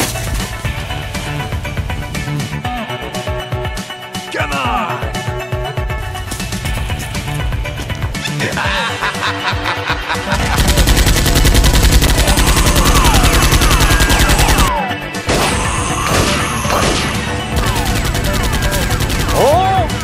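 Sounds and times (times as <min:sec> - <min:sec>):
background music: 0:00.0 - 0:20.0
rapid automatic gunfire: 0:10.4 - 0:14.7, 0:16.1 - 0:19.8.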